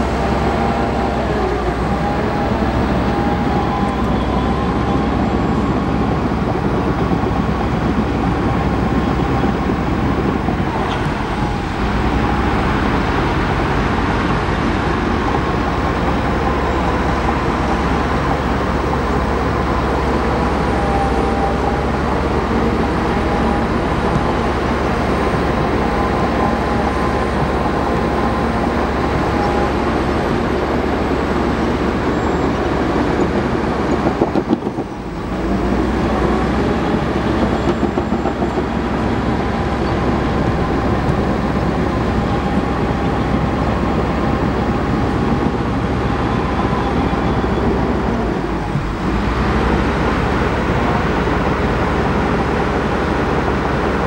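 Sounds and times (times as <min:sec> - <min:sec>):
faint wavering squeal: 0:00.0 - 0:06.2
bulldozer diesel engine under load: 0:00.0 - 0:54.0
steel tracks clanking: 0:00.0 - 0:54.0.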